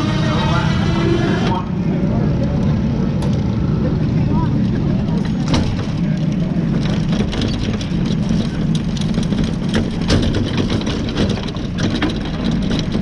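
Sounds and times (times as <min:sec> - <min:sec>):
kart engine idling: 0:00.0 - 0:13.0
sharp ticks and rattles: 0:04.6 - 0:13.0.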